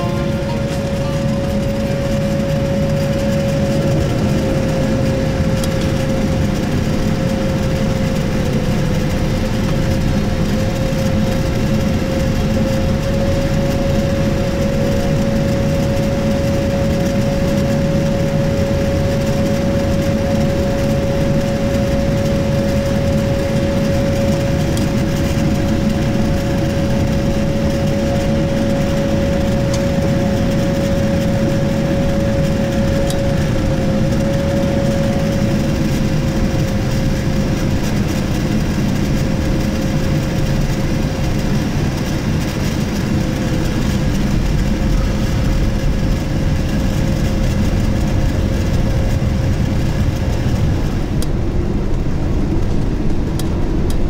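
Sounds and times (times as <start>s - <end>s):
jet engine rumble in cabin: 0.0s - 54.0s.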